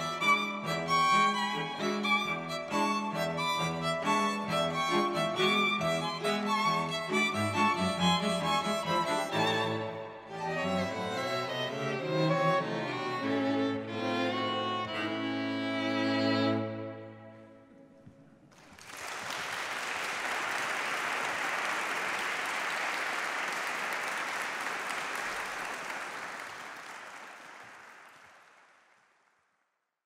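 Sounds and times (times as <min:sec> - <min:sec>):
string quartet chord: 0:00.0 - 0:17.6
audience applauding: 0:18.5 - 0:29.4.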